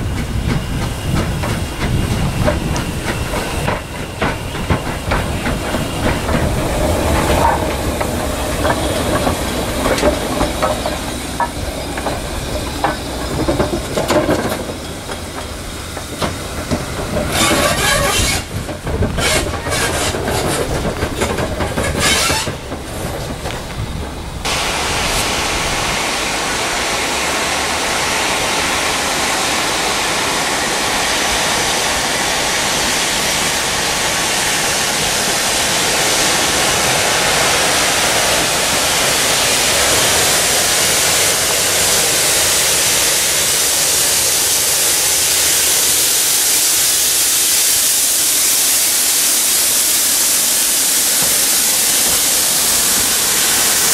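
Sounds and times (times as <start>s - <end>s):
wheels clattering over rail joints: 0.0s - 24.5s
loud steam hiss: 0.0s - 53.9s
steam locomotive rumble: 0.0s - 53.9s.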